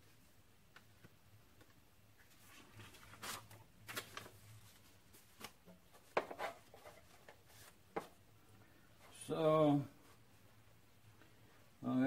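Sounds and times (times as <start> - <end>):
paper rustling: 2.2 - 8.2.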